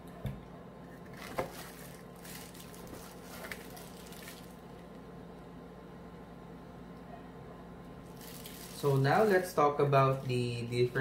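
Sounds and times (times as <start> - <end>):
plastic bags crinkling: 1.1 - 5.0, 8.1 - 11.0.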